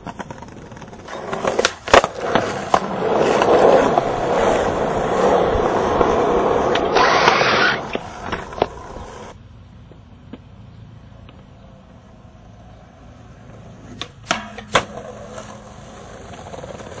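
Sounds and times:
skateboard clacks on concrete: 0:00.0 - 0:10.5, 0:13.4 - 0:17.0
skateboard smacking metal rail: 0:14.0 - 0:15.0.

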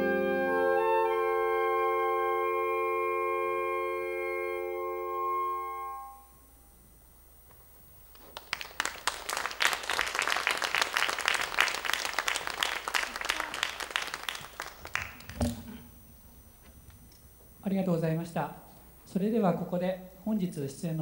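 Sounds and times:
saxophone ensemble chord: 0:00.0 - 0:06.6
audience applause: 0:08.0 - 0:15.9.

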